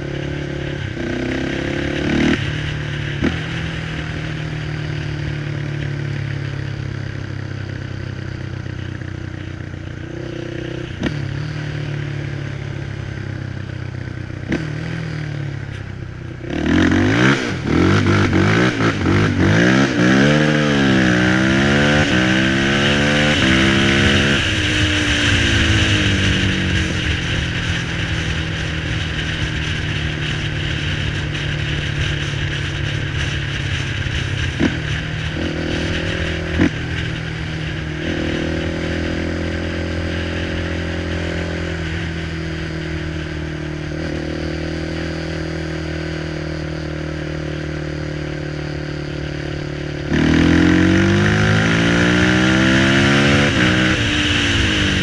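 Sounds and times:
quad engine revving: 16.4 - 27.8, 49.8 - 55.0.

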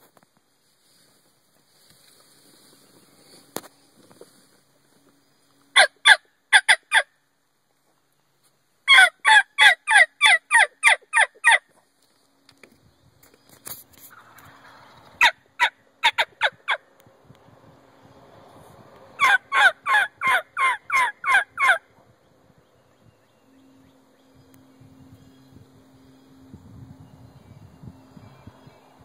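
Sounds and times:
turkey call yelps: 5.8 - 7.1, 8.9 - 11.6, 14.1 - 16.9, 19.2 - 21.9.

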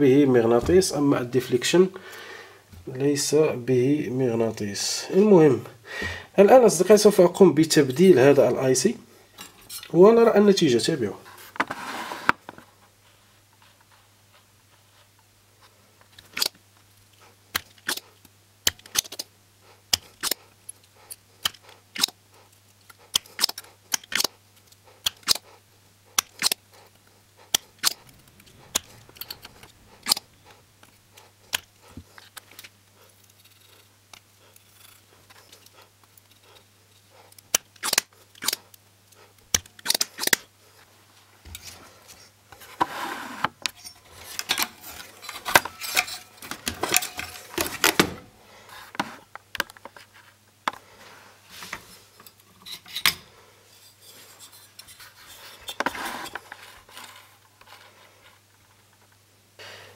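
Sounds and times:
circuit board rustling and clattering: 43.6 - 48.3.

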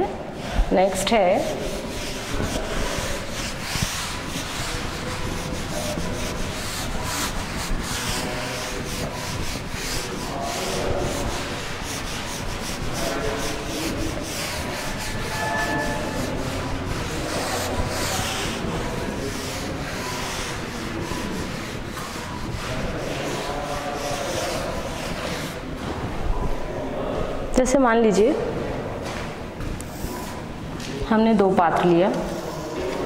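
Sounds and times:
duster scrubbing blackboard: 0.4 - 25.8.

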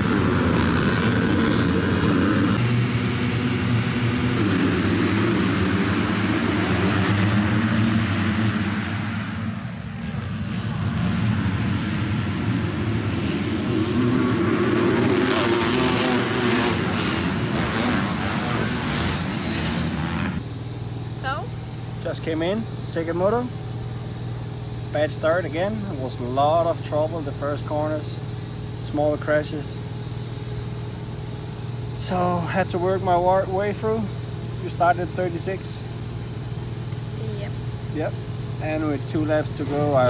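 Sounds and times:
motocross bikes racing: 0.0 - 20.4, 38.0 - 40.0.

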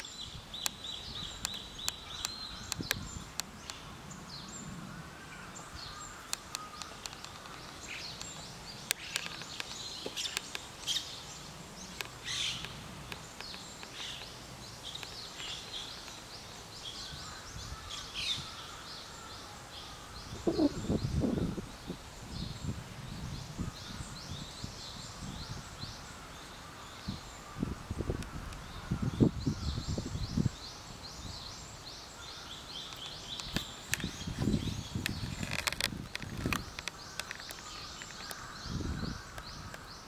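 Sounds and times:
small birds chirping: 0.0 - 40.0
camera body clicks and creaks: 6.3 - 10.7, 32.9 - 38.5.

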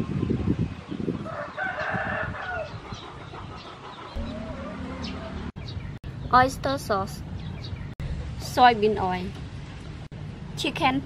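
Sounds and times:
rooster crowing: 1.3 - 2.7.

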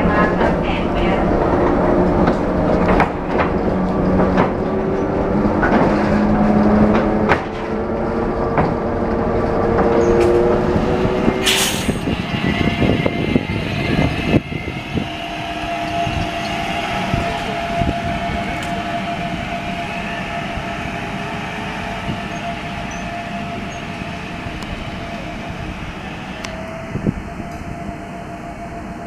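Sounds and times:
knocks and rattles from tram body: 0.0 - 14.5
tram electric whine: 0.0 - 29.0.

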